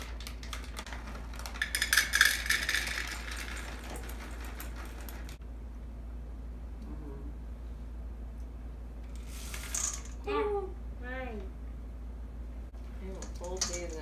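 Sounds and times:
chocolate chips rattling into metal cup: 0:00.0 - 0:05.4, 0:09.5 - 0:10.2.

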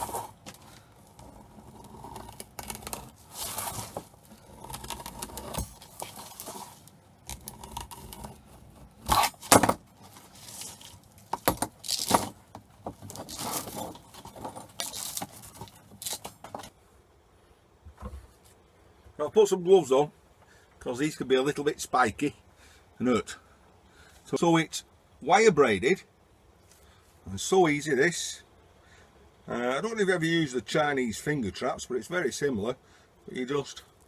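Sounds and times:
plastic sheath being peeled: 0:10.2 - 0:12.4, 0:13.0 - 0:16.7
metal braid rattling and scraping: 0:13.0 - 0:16.7.

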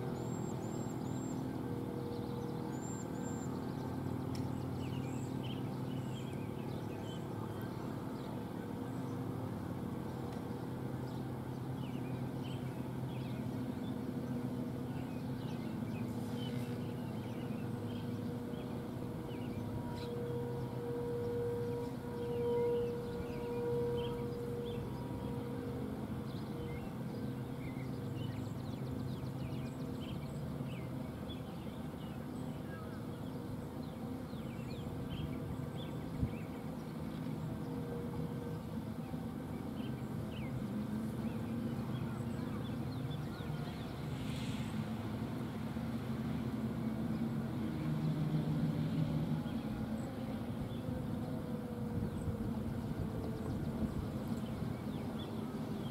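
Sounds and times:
warning siren steady tone: 0:16.1 - 0:29.0.

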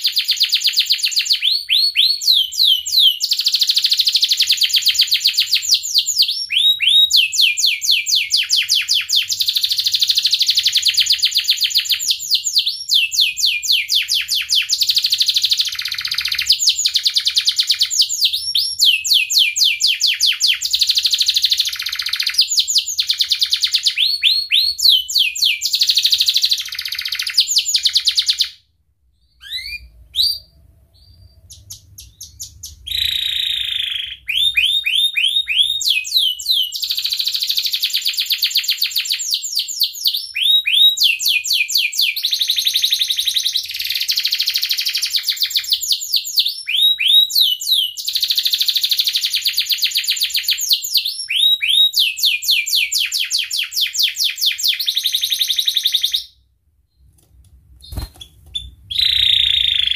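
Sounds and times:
bird chirps: 0:00.0 - 0:57.2, 0:57.8 - 0:59.9
canary singing trills: 0:29.2 - 0:47.1, 0:57.8 - 0:59.9.

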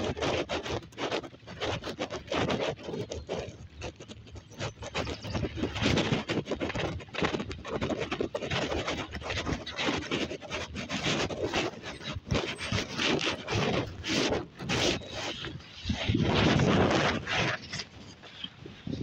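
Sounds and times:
wind buffeting microphone: 0:00.0 - 0:19.0
bike rolling over dirt path: 0:11.2 - 0:19.0.

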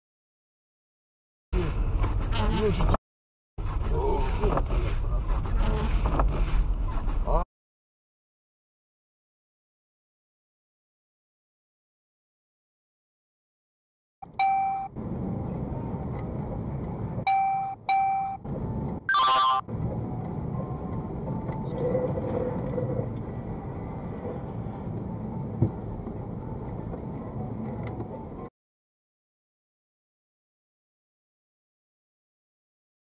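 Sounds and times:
car road and engine noise: 0:01.6 - 0:03.0, 0:03.6 - 0:07.4, 0:14.2 - 0:28.5
short electronic beeps: 0:14.2 - 0:14.9, 0:19.1 - 0:19.6.

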